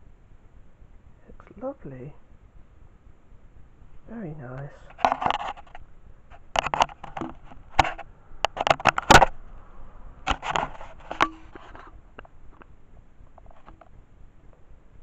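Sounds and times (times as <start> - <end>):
scraping and rustling on bedding: 10.3 - 12.0.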